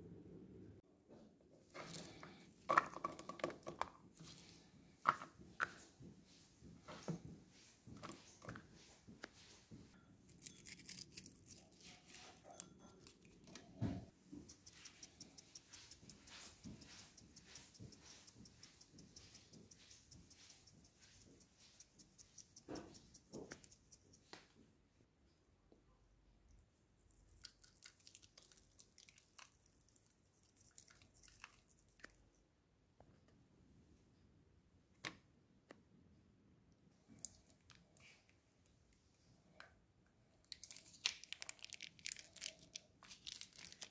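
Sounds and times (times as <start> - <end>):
plastic spice shaker rattling: 40.6 - 43.9.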